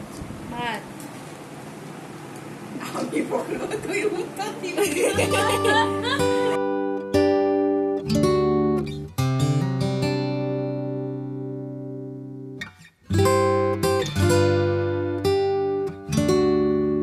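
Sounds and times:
plucked chords music: 5.1 - 17.0.

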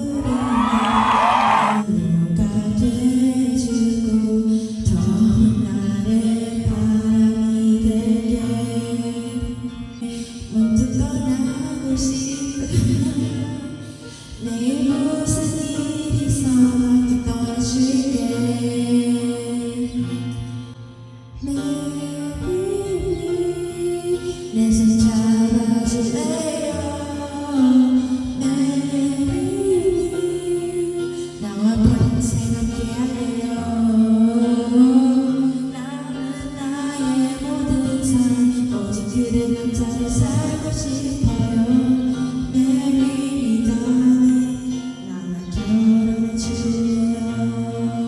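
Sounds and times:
backing track music: 0.0 - 2.6
ballad backing track: 0.0 - 48.0
woman singing into a microphone: 0.0 - 48.0.

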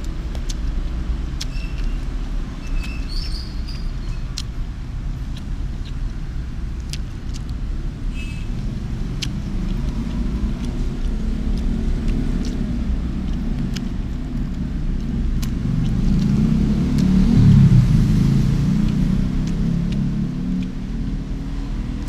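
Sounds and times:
road traffic rumble: 0.0 - 22.0
wooden chopsticks clicking: 9.2 - 16.3, 18.8 - 21.3.

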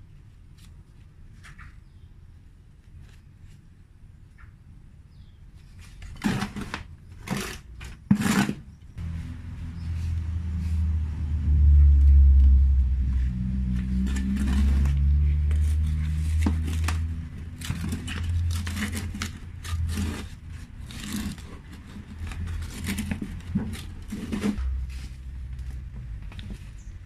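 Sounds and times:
plastic trowel scraping pot: 5.8 - 8.8, 13.7 - 24.7
low rumble: 9.0 - 20.7.

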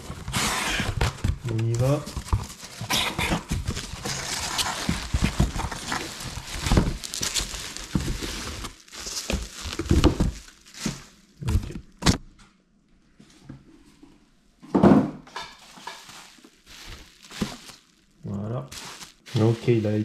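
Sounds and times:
packing material rustling: 0.0 - 12.2, 15.6 - 20.0
box knocks and thumps: 9.3 - 12.2.

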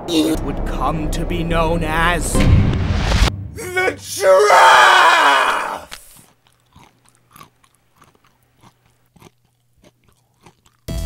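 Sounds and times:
chewing munching and crunches: 5.9 - 11.0.

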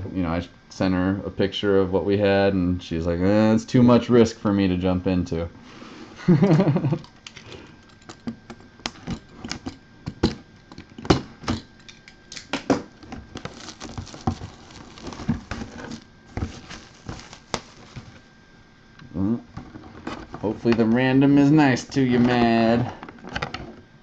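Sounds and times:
tape and plastic crinkling: 10.6 - 18.3.

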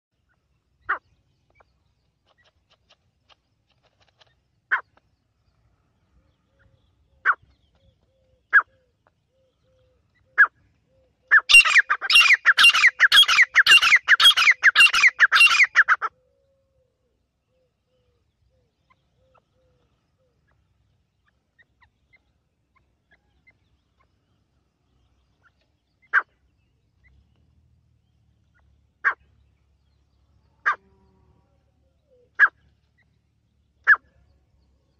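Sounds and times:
francolin calling: 6.6 - 16.3.

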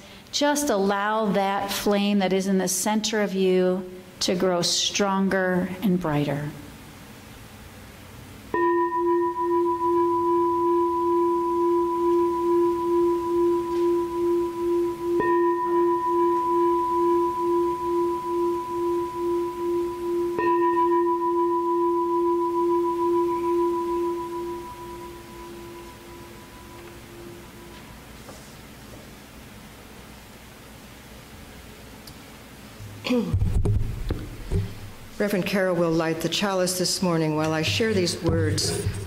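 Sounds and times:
singing bowl struck and ringing: 8.5 - 28.0.

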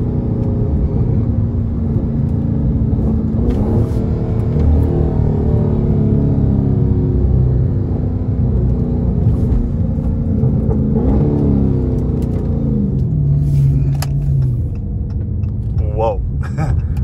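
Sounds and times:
car engine slowing down: 8.5 - 17.0.

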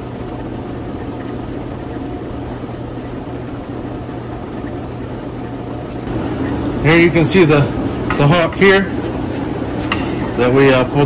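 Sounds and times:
hum and hiss of aquarium equipment: 0.0 - 11.0.

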